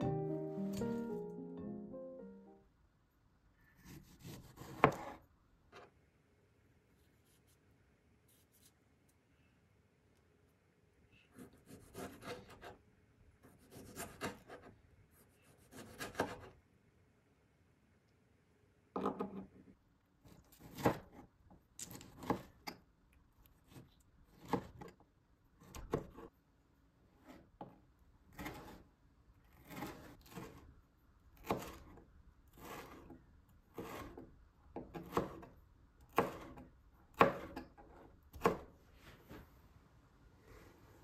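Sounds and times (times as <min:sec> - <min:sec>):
knife chopping on cutting board: 0:03.8 - 0:05.2, 0:20.6 - 0:21.2, 0:31.4 - 0:32.0, 0:34.8 - 0:35.5, 0:36.1 - 0:37.7, 0:38.3 - 0:38.7.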